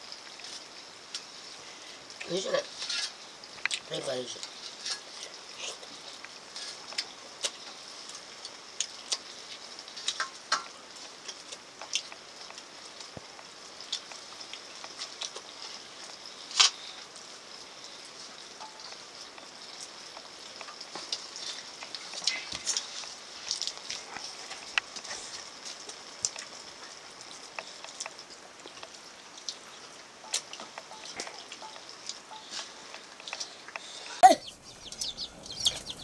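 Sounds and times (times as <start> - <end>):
steady high hiss: 31.8 - 36.0.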